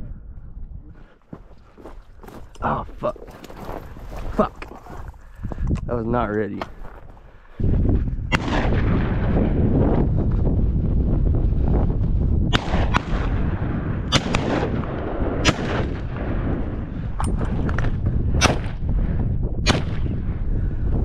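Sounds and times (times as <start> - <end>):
steady low rumble: 1.8 - 21.0
shotgun shots: 8.3 - 9.6, 12.5 - 16.5, 17.8 - 18.8, 19.6 - 20.1.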